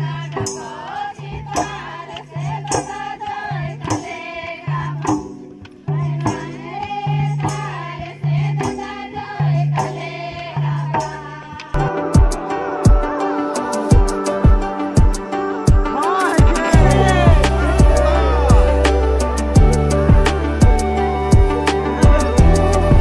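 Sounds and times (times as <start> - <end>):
group folk singing: 0.0 - 23.0
barrel drum beat: 11.3 - 23.0.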